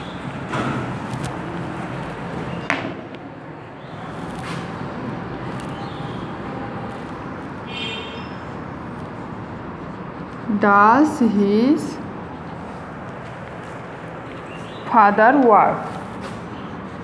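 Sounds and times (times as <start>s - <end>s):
marker writing on whiteboard: 5.4s - 17.0s
marker squeak: 7.7s - 8.6s.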